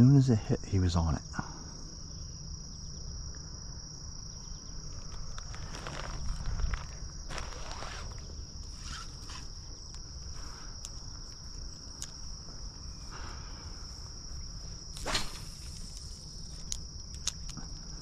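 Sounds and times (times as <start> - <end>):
crickets trilling: 0.0 - 18.0
faint ticks: 9.3 - 12.6, 15.6 - 18.0.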